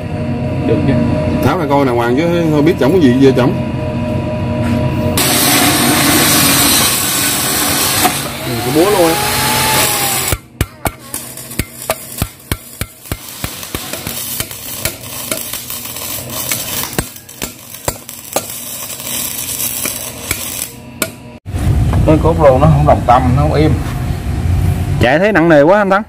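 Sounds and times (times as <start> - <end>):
hammer striking steel: 9.7 - 21.4.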